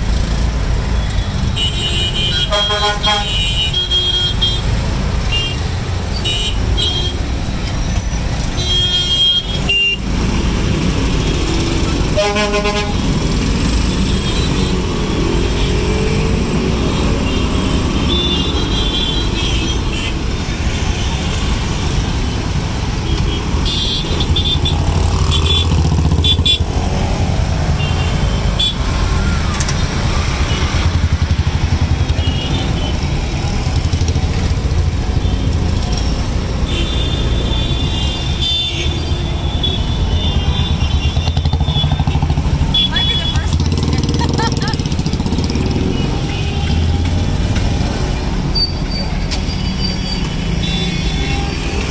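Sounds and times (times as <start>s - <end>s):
motorcycles: 0.0s - 51.9s
vehicle horns tooting: 1.0s - 7.3s, 8.5s - 10.1s, 12.1s - 13.2s, 16.8s - 21.4s, 23.1s - 26.8s, 27.6s - 29.3s, 32.0s - 33.1s, 35.2s - 43.9s, 45.7s - 47.0s, 48.6s - 51.9s.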